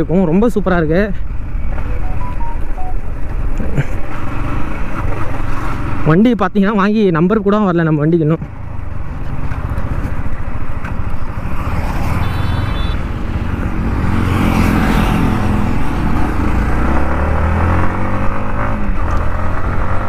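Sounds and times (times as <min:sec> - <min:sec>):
road and wind noise: 0:00.0 - 0:20.0.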